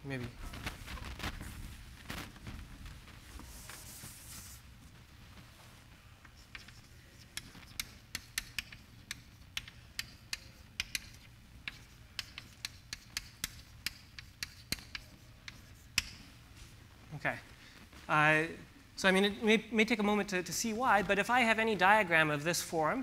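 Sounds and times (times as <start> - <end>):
chalk tapping on blackboard: 6.3 - 16.4.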